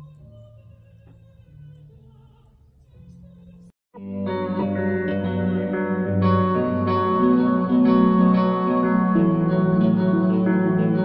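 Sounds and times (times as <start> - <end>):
plucked guitar music: 4.0 - 11.0.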